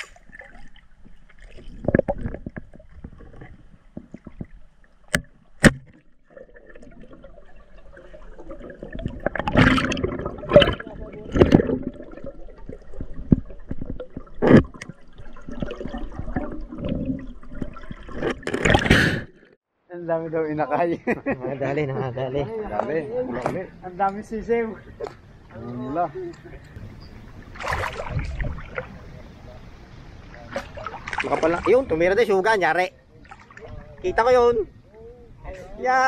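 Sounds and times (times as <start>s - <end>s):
water splashing and gurgling: 0.0s - 19.6s, 26.7s - 34.3s.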